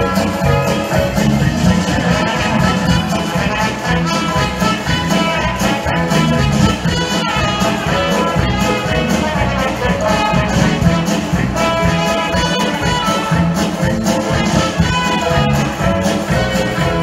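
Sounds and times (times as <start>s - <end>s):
upbeat brass show music: 0.0s - 17.0s.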